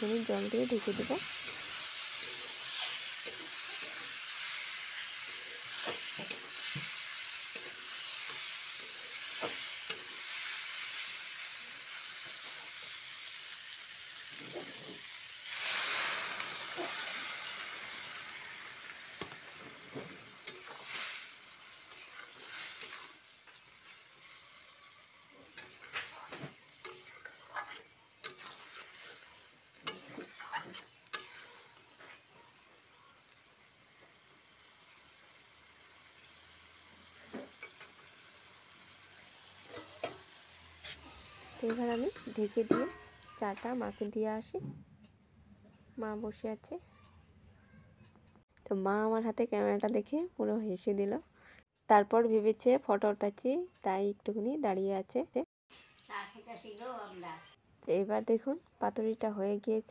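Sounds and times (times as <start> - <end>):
water sizzling in hot pan: 0.0 - 44.2, 55.7 - 57.2
food sizzling in a pan: 0.0 - 44.5, 55.7 - 57.6
metal spatula scraping a pan: 0.2 - 11.1, 14.3 - 32.6, 39.5 - 44.1.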